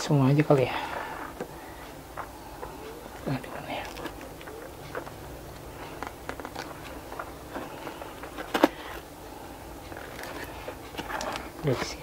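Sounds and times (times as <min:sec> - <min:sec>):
paper and cardboard rustling: 0:05.8 - 0:09.1, 0:09.9 - 0:12.0.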